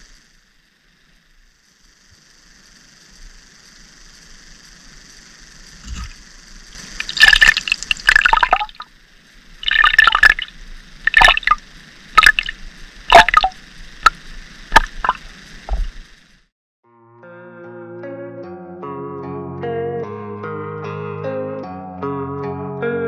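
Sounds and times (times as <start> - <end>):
high water hiss: 0.0 - 16.5
underwater crackling splashes: 5.8 - 8.9, 9.6 - 16.1.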